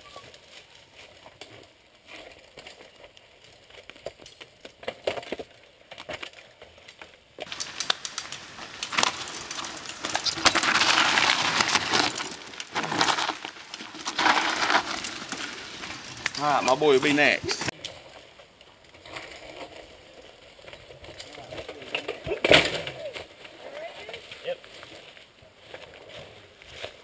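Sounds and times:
leaves and stones crunching underfoot: 6.1 - 22.2.

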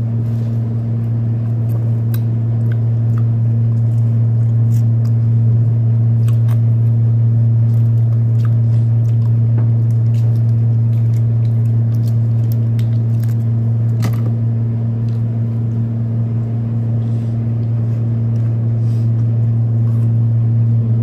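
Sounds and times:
loud steady low hum: 0.0 - 21.0
biting and chewing clicks: 1.0 - 14.4.

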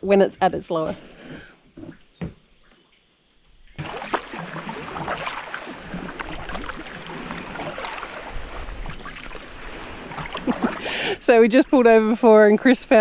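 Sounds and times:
paddle splashing water: 3.5 - 13.0
low wind rumble: 4.3 - 13.0.

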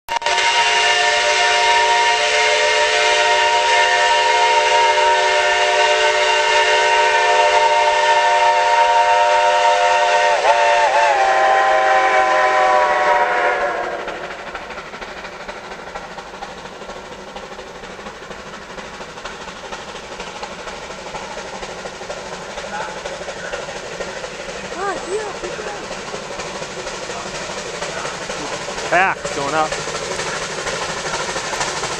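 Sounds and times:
steam locomotive chime whistle: 0.1 - 14.4
steam hiss: 0.2 - 31.9.

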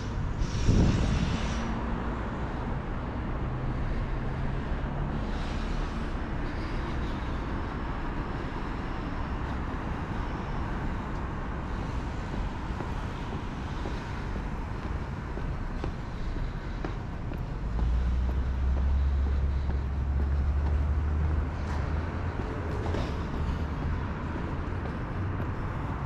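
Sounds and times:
cars and bus passing: 0.0 - 26.0
low engine hum: 0.0 - 26.0.

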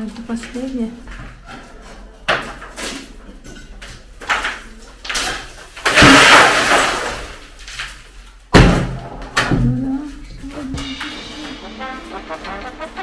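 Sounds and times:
demolition knocks and clatter: 2.3 - 10.8.

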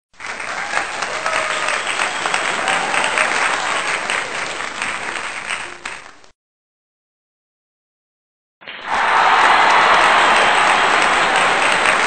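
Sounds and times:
applause: 0.1 - 6.3, 8.7 - 12.0.

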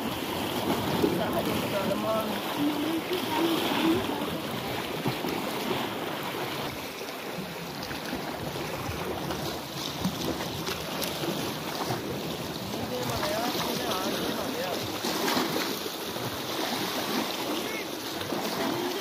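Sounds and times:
sea waves washing against rocks: 0.0 - 19.0.

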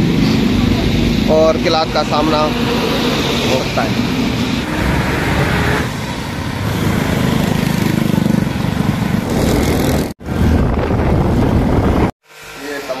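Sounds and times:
vehicles passing: 0.0 - 12.0
wind rushing: 8.7 - 12.1.

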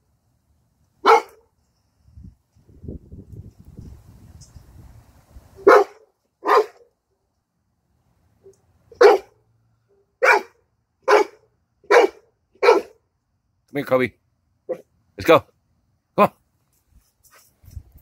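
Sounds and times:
dog barking: 1.0 - 1.5, 5.6 - 6.9, 8.9 - 9.4, 10.2 - 13.0, 14.7 - 14.9.

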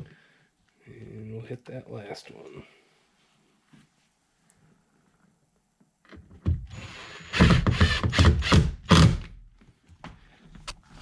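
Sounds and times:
impact driver hammering: 7.2 - 9.3.

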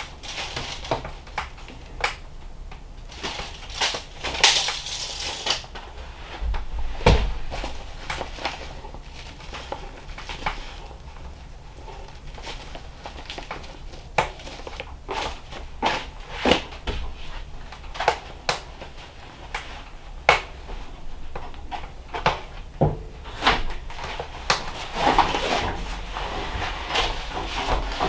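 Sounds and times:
knocks and clunks on wood: 6.5 - 7.4.

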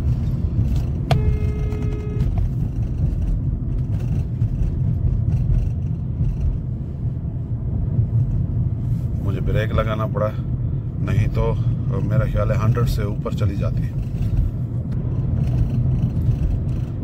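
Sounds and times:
road and tyre rumble: 0.0 - 17.0
car horn: 0.9 - 2.6.

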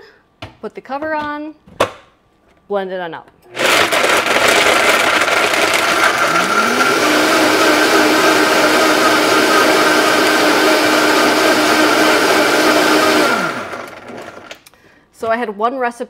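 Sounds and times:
blender crushing ice: 3.5 - 14.7.

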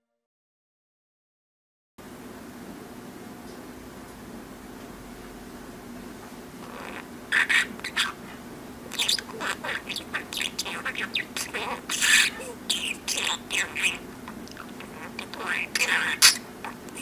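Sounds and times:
budgerigar chattering: 6.6 - 8.2, 8.9 - 17.0.

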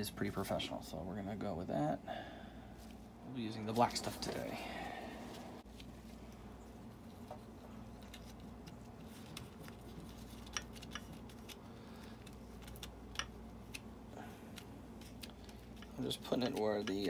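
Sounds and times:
steady low hum: 0.0 - 17.0
faint clicks and taps on metal: 14.6 - 17.0.

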